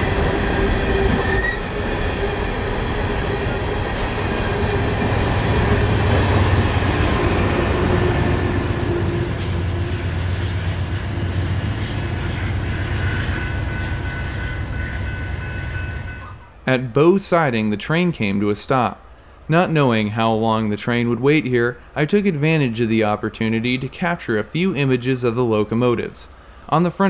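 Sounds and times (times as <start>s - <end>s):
train cars rumbling on rails: 0.0s - 16.7s.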